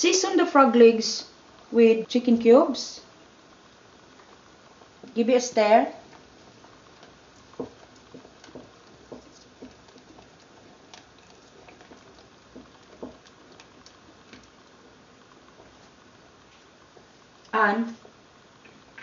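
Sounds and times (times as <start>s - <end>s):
wooden spoon knocking a pot: 7.6s - 10.3s, 11.8s - 13.7s.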